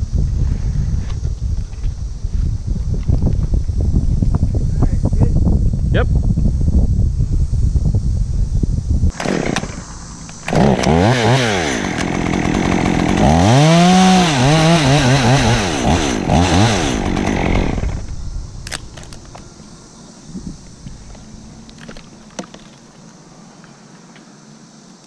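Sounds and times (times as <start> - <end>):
chainsaw revving: 9.1 - 9.8, 10.4 - 18.1.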